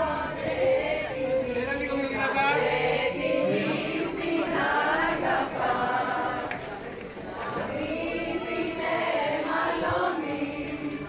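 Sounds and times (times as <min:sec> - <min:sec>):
group of voices singing: 0:00.0 - 0:11.0.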